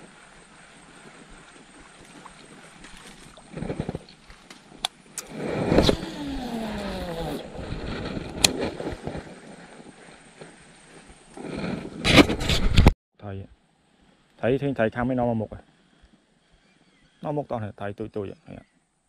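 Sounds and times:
grass rustling: 0.0s - 12.9s.

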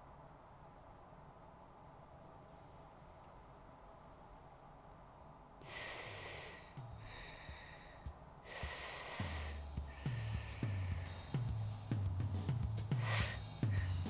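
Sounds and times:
breathy hissing bursts: 5.6s - 14.0s
low bass pulses and thuds: 8.1s - 14.0s.

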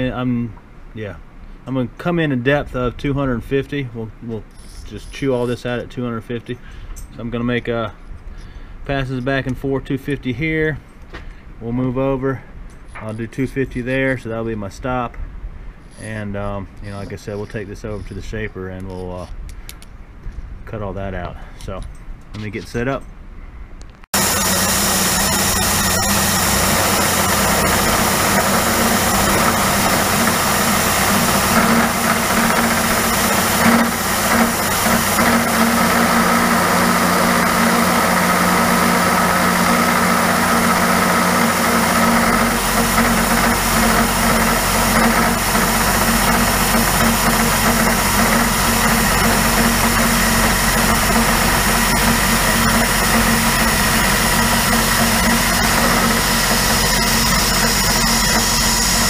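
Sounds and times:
deep steady hum: 24.1s - 59.0s
milling machine cutting metal: 24.2s - 59.0s.

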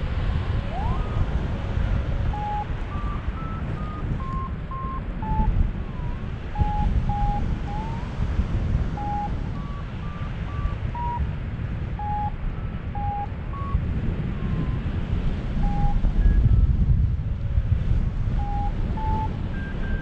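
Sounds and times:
wind rushing over microphone: 0.0s - 20.0s
variometer short beeps: 2.3s - 5.6s, 6.6s - 8.1s, 9.0s - 11.3s, 12.0s - 13.8s, 15.6s - 16.7s, 18.4s - 20.0s.

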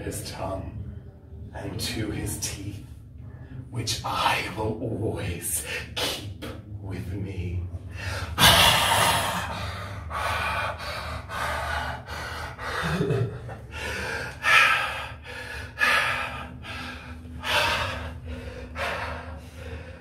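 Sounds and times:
person breathing hard and gasping: 7.9s - 20.0s.

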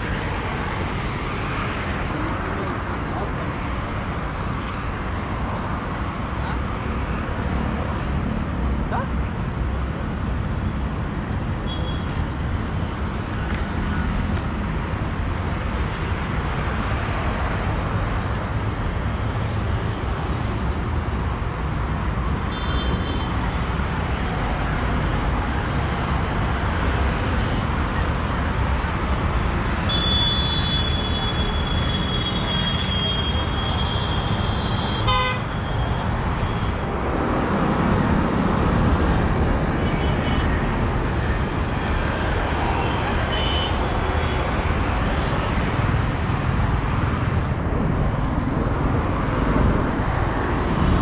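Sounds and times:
road traffic noise: 0.0s - 51.0s
vehicle horns honking: 29.9s - 35.8s.

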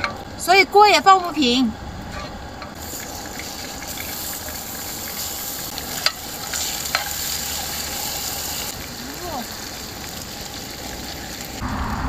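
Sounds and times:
food sizzling in a pan: 1.2s - 11.6s.

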